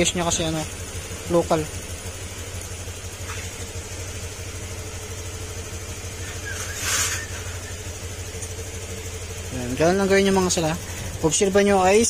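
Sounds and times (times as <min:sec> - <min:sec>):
scooter engine idling: 0:00.0 - 0:12.0
brief hiss: 0:06.5 - 0:07.5.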